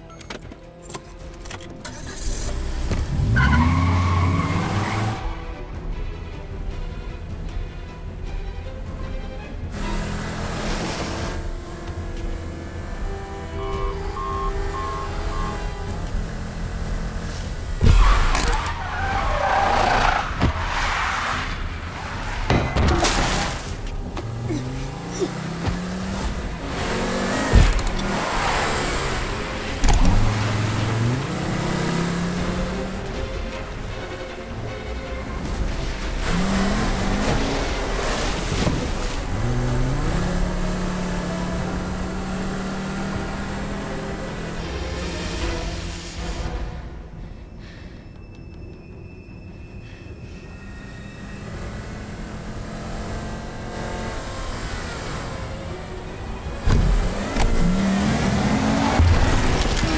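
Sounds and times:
road and wind noise: 0.0 - 59.9
car engine running hard: 9.6 - 20.7, 23.1 - 46.3, 51.2 - 59.9.

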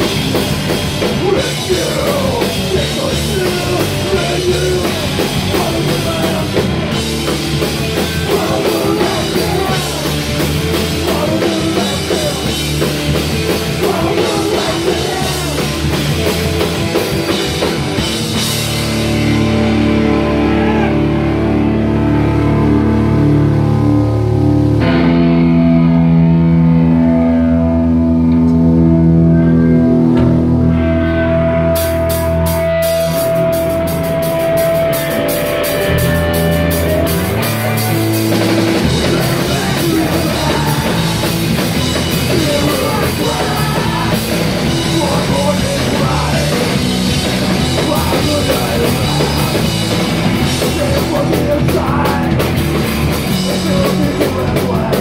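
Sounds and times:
drums and cymbals: 0.0 - 19.9, 31.8 - 55.0
bass guitar: 0.0 - 55.0
electric guitar: 0.0 - 55.0.

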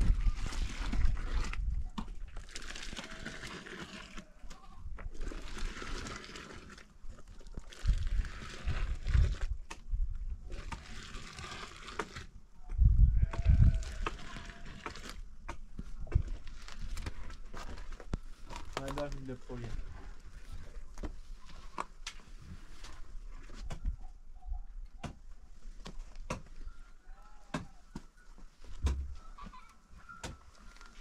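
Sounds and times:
livestock bleating: 13.1 - 14.8.

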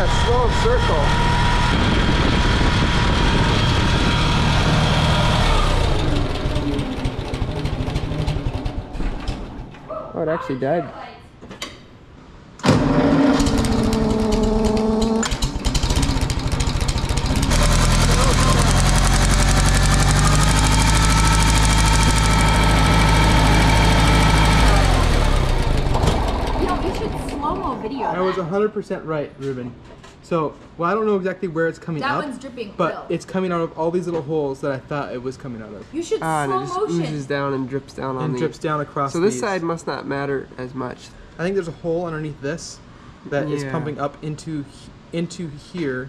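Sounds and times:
tractor engine running and stalling: 0.0 - 9.8, 12.6 - 27.7.

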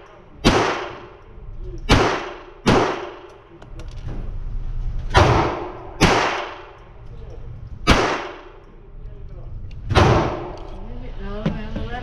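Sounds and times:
pistol shots ringing indoors: 0.0 - 3.5, 5.1 - 6.9, 7.8 - 8.8, 9.8 - 10.8.

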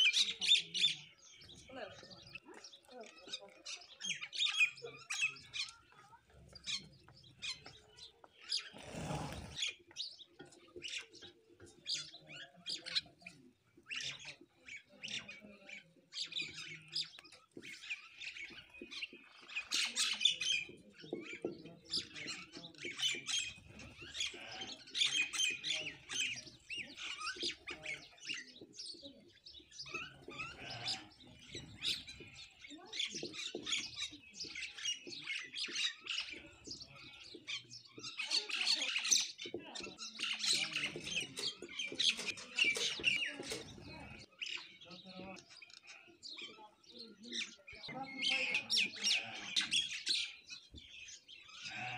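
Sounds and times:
sparrows chirping: 0.0 - 51.9.

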